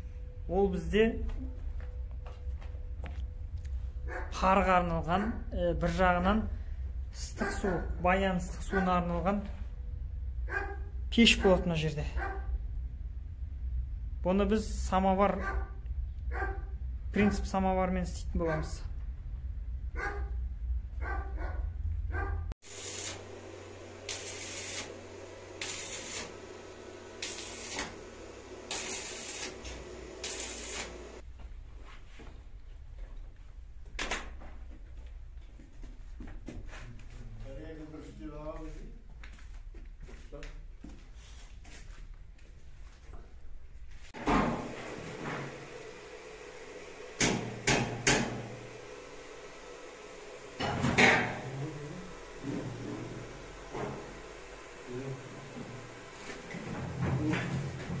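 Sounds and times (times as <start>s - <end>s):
low steady hum: 0.0s - 22.6s
electric arc welding crackling: 22.6s - 31.2s.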